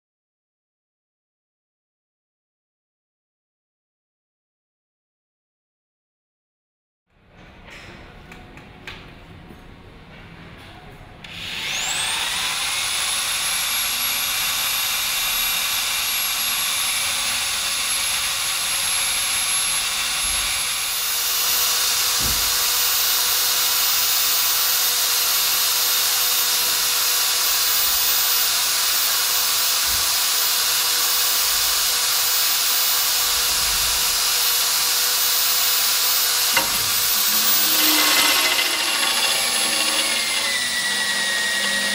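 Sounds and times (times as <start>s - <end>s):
electric drill whining: 11.3s - 41.9s
holesaw cutting steel: 11.3s - 41.9s.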